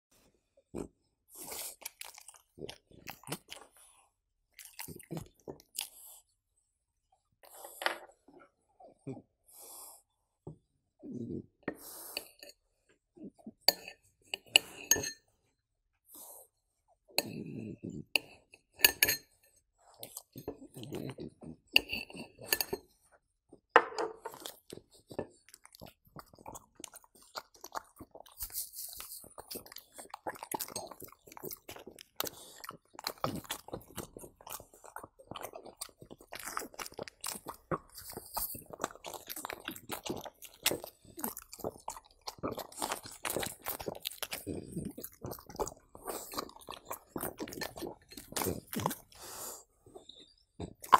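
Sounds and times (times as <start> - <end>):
spoon scraping ceramic bowl: 13.7 - 15.3, 17.2 - 19.5, 21.8 - 23.0
dog chewing and licking: 24.2 - 50.9.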